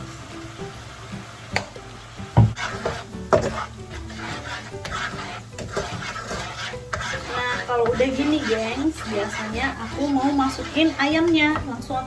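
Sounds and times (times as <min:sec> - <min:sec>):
sauce sizzling in a wok: 0:00.0 - 0:12.0
utensils knocking against pan: 0:02.4 - 0:11.9
wooden spatula stirring sauce: 0:02.4 - 0:12.0.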